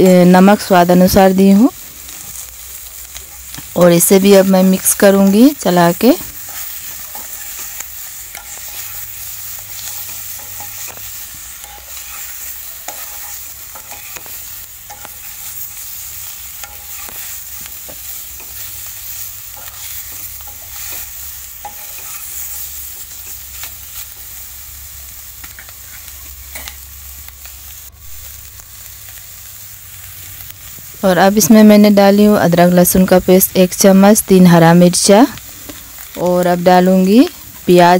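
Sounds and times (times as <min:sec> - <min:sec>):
food sizzling in pan: 0:00.0 - 0:37.9
metal spoon scraping pan: 0:06.2 - 0:18.8, 0:19.5 - 0:23.7.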